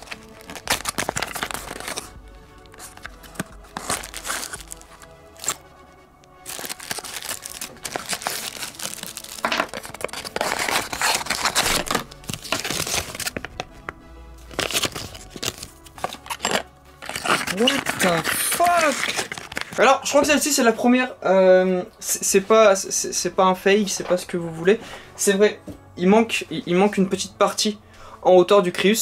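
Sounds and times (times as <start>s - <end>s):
plastic bag crinkling: 0.0s - 5.6s, 6.4s - 13.7s, 14.5s - 19.9s
background music: 0.0s - 29.0s.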